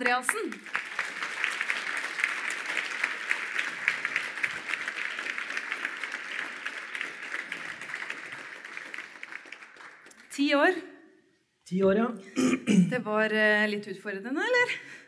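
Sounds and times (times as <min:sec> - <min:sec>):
audience applauding: 0:00.0 - 0:10.5.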